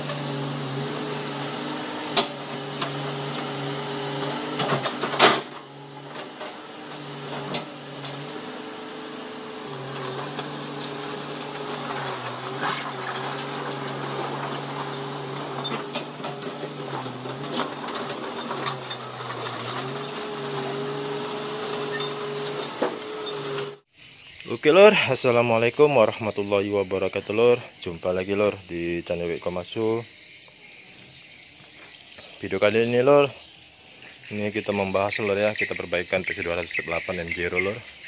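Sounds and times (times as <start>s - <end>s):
excavator diesel engine droning: 0.0s - 23.9s.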